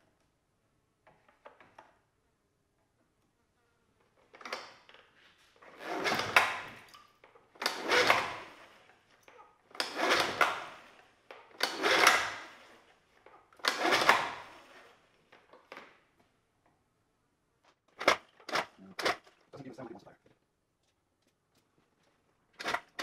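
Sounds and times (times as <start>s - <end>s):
outboard engine recoil starter pulls: 7.6s - 9.0s, 9.8s - 12.7s, 13.6s - 14.9s.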